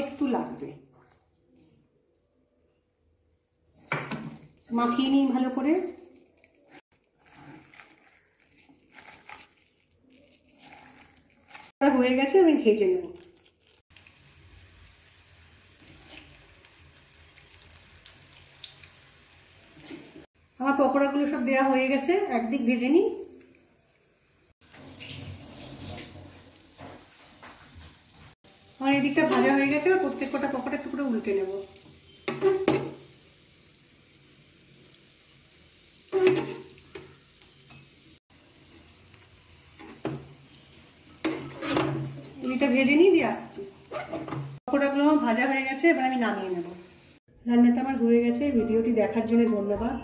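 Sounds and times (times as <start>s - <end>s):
frying oil sizzling and popping: 0.0s - 1.4s, 3.0s - 47.3s
metal spatula scraping a pan: 32.1s - 33.0s, 36.1s - 38.0s, 39.8s - 42.8s, 43.8s - 44.6s.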